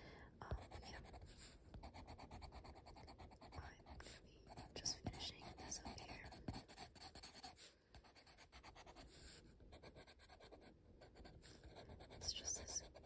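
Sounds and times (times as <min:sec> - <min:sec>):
pencil scratching on paper: 0:00.6 - 0:13.0.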